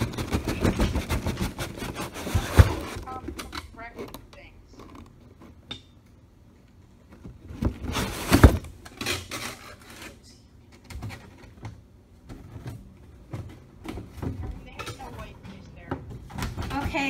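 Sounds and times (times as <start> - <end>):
cardboard scraping and rustling: 0.0 - 3.4, 7.4 - 10.2
box thumping down: 7.5 - 8.7.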